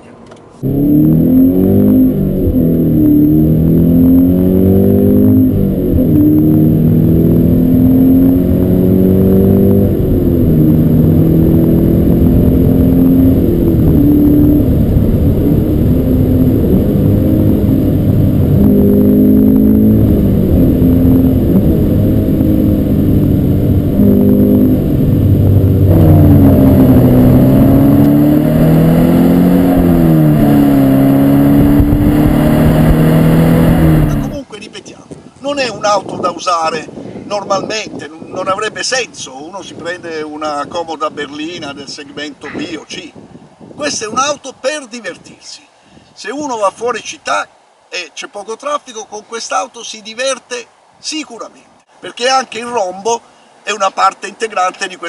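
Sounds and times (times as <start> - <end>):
car engine accelerating hard: 0.6 - 34.4.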